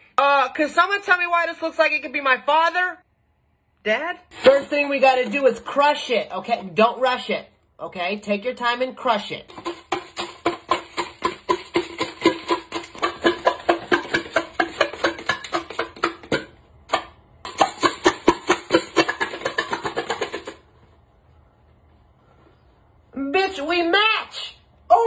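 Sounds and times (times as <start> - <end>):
spatula handle crunching chips in can: 9.5 - 16.0.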